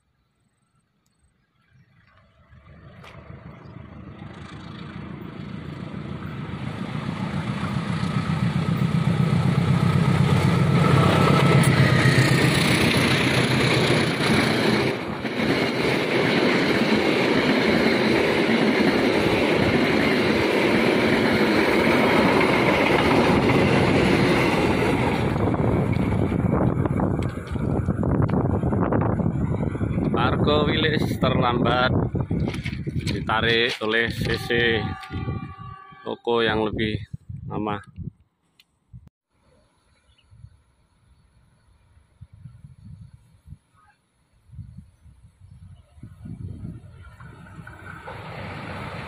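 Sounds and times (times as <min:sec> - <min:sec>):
diesel locomotive engine: 0:01.5 - 0:38.1, 0:44.4 - 0:49.0
train wheels rumbling on rails: 0:02.4 - 0:36.0, 0:46.0 - 0:49.0.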